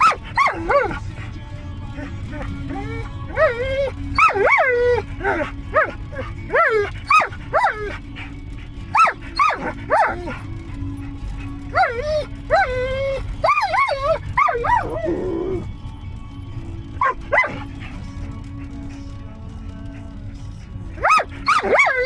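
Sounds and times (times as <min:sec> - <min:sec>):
dog whining and yelping: 0:00.0 - 0:01.0, 0:02.4 - 0:15.7, 0:17.0 - 0:17.7, 0:21.0 - 0:22.0
vehicle rumble: 0:00.0 - 0:22.0.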